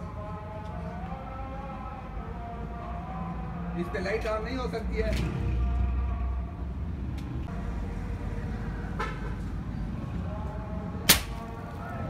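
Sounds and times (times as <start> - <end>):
air rifle shot: 11.1 - 11.4.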